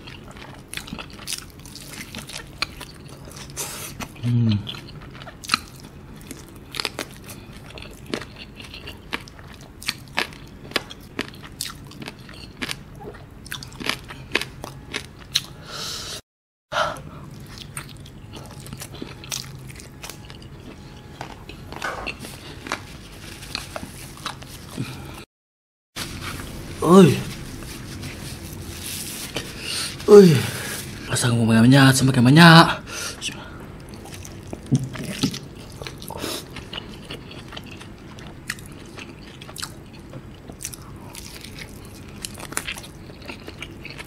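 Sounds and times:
crunching fried chicken: 0:00.0 - 0:15.6, 0:33.8 - 0:44.0.

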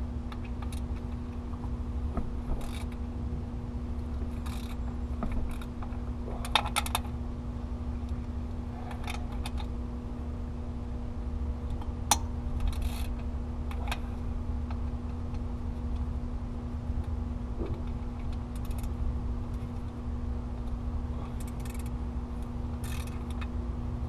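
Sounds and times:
steady low hum: 0:00.0 - 0:24.0
ratchet clicking: 0:02.6 - 0:03.0, 0:04.3 - 0:04.8, 0:18.3 - 0:18.9, 0:21.3 - 0:23.5.

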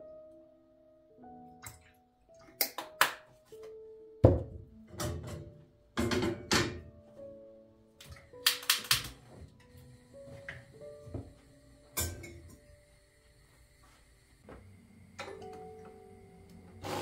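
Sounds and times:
soft background music: 0:00.0 - 0:17.0
kitchen items thunking and clattering: 0:04.2 - 0:06.9.

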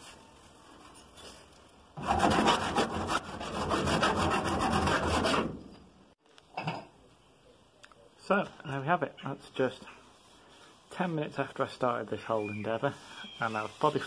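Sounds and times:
file rasping on metal: 0:02.0 - 0:05.5.

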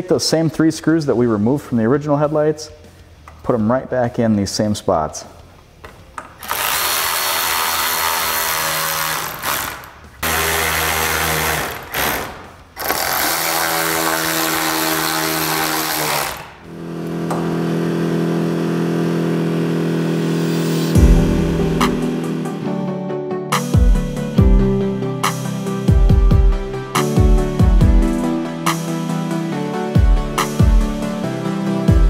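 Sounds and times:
cordless drill driving screws: 0:06.4 - 0:16.7.

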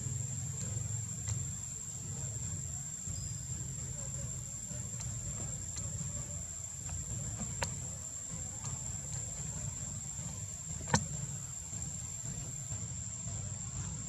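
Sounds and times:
high-pitched insect drone: 0:00.0 - 0:14.0
faint ticks: 0:04.0 - 0:14.0.

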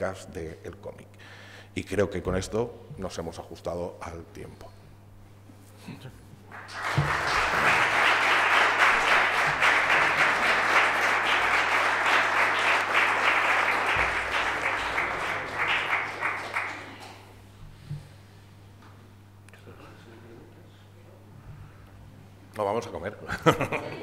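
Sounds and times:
audience applauding: 0:06.5 - 0:17.4.

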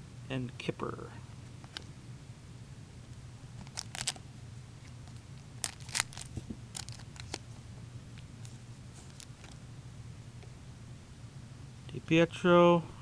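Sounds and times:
low steady hum: 0:00.0 - 0:13.0
trading cards clicking and snapping: 0:03.6 - 0:04.2, 0:05.6 - 0:07.4.

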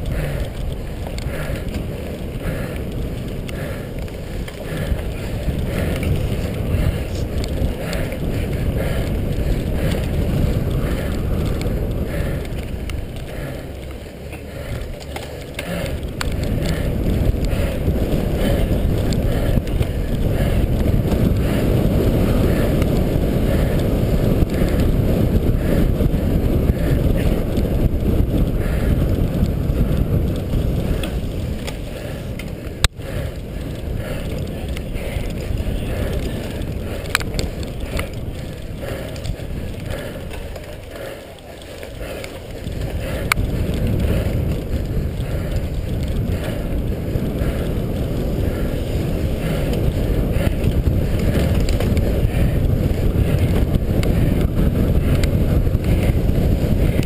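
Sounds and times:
bike rattling over bumpy ground: 0:00.0 - 0:57.0
wind buffeting microphone: 0:00.0 - 0:57.0.

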